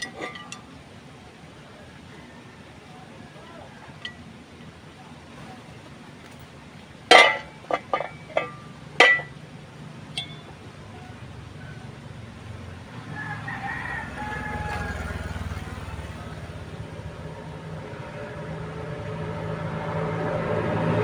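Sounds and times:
metal stove parts clanking: 0.0 - 0.7, 7.1 - 9.4, 10.2 - 10.6.

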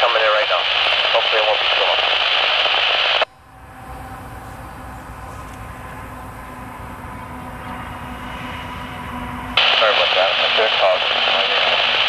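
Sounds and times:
distant diesel locomotives rumbling: 3.3 - 9.6.

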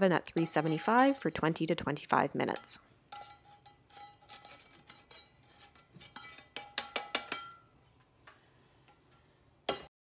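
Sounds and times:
kitchenware clicks and taps: 5.9 - 7.6, 9.7 - 9.9.

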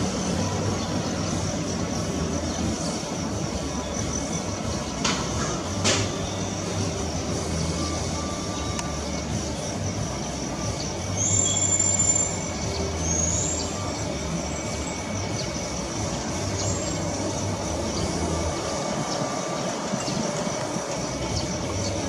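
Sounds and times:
jet engines rumbling with whine: 0.0 - 22.0.

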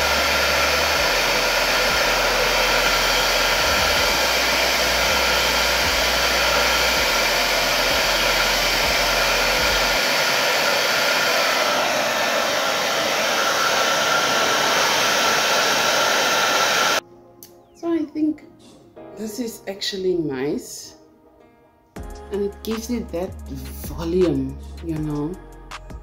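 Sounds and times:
hair dryer running: 0.0 - 17.0.

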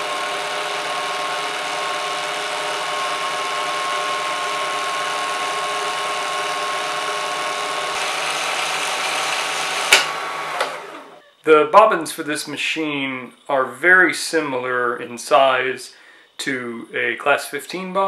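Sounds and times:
sewing machine motor whining: 0.0 - 11.4.

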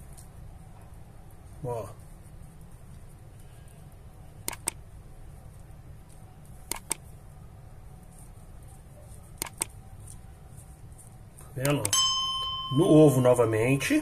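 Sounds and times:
steady low hum: 0.0 - 14.0
mouse double clicks: 4.4 - 4.8, 6.7 - 7.0, 9.4 - 9.8.

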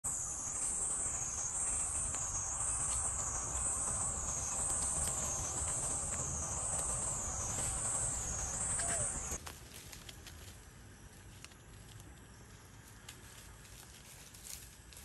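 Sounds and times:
cicada chorus: 0.0 - 9.4.

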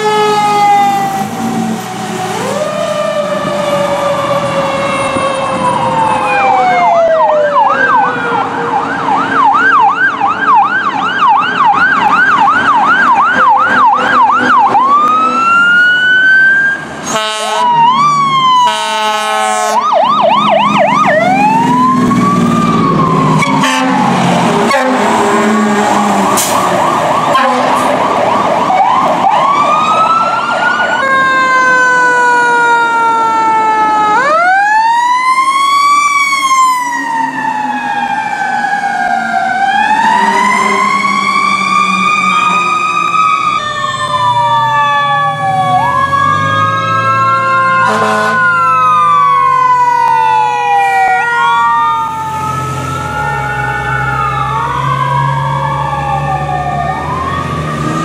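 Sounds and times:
fire truck sirens: 0.0 - 58.0.

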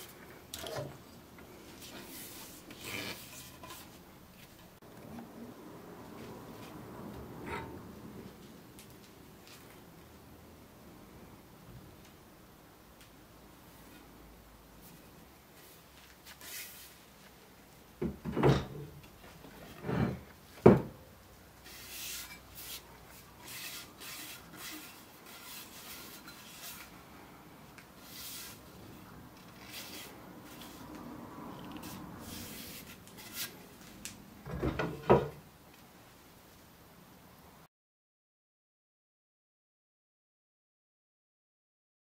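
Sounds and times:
soft rubbing and scraping: 0.0 - 4.8, 14.8 - 17.4, 21.6 - 27.1, 28.0 - 34.0.

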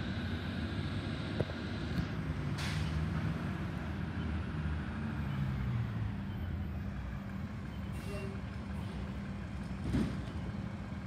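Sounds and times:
truck engine rumbling: 0.0 - 11.0
air brake hiss: 2.6 - 3.0.

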